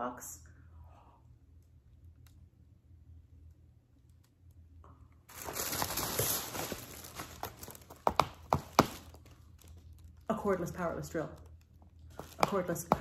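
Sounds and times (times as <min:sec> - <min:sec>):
tissue paper rustling: 0:05.3 - 0:09.8.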